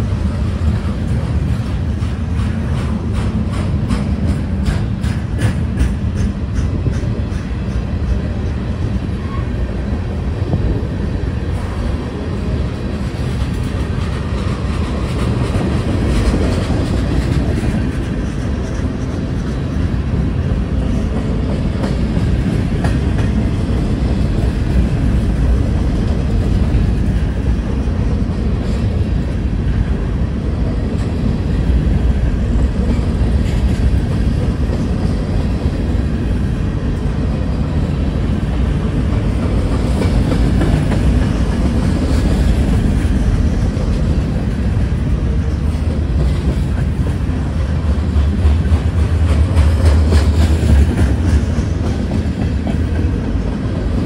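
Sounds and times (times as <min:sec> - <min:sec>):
freight train wheels rumbling on rails: 0:00.0 - 0:54.0
train wheel clicks: 0:00.4 - 0:08.6, 0:12.8 - 0:20.1, 0:20.8 - 0:27.5, 0:37.8 - 0:53.9.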